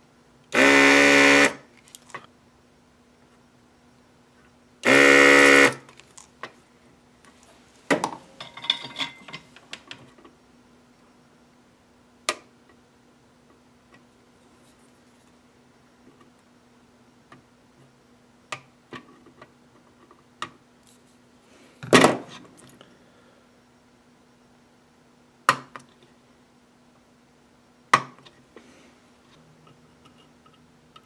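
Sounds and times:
faint steady hum: 0.0s - 31.0s
tool clatter: 7.9s - 9.6s.

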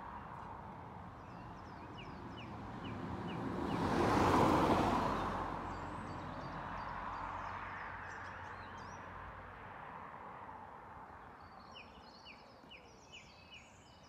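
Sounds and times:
car passing: 2.0s - 10.6s.

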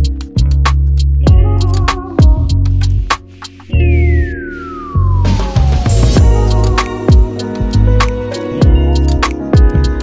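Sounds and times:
music with heavy low beat: 0.0s - 10.0s
tone sliding down in pitch: 3.7s - 6.6s.

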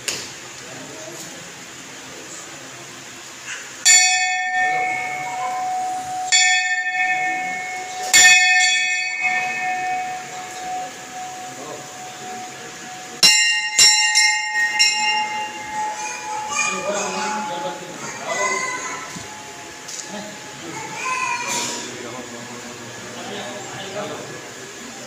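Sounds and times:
temple bell ringing: 3.8s - 25.0s
second bell struck: 3.9s - 20.4s.

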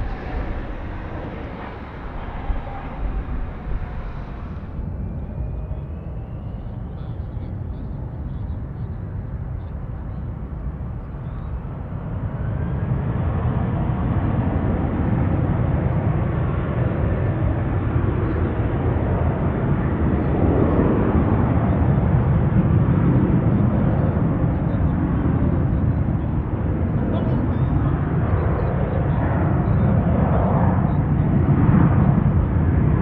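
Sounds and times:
faint rising whine: 0.0s - 7.1s
jet engines rumbling: 0.0s - 33.0s.

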